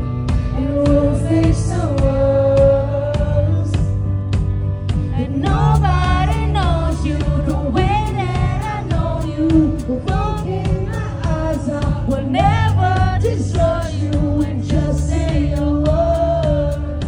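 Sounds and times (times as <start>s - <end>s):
rock band playing: 0.0s - 17.0s.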